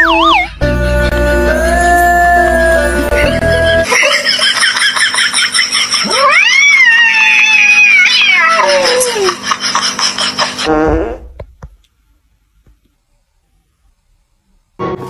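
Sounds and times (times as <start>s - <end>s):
cat yowling: 6.0s - 9.4s.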